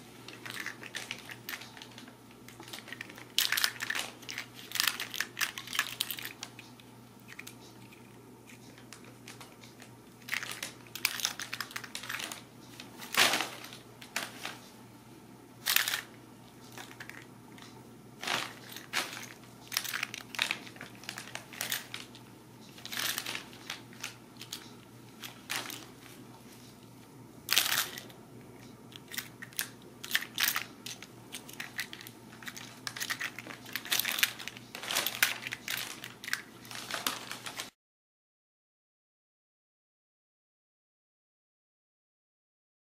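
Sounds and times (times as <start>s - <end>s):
paper crinkling and rustling: 0.1s - 14.8s, 15.7s - 26.7s, 29.0s - 37.7s.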